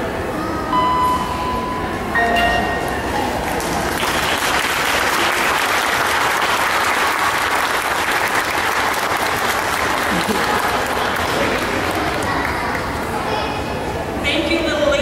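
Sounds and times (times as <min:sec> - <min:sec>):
audience applauding: 0:03.4 - 0:13.0.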